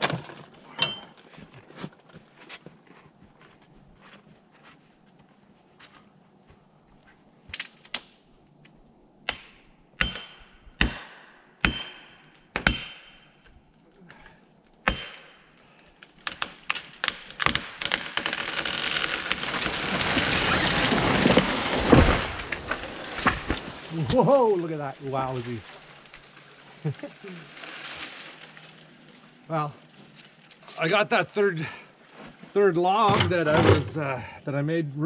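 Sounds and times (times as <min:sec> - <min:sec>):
wood cracking: 0:00.0 - 0:00.8, 0:07.5 - 0:31.0
tree crashing through branches: 0:16.1 - 0:30.6.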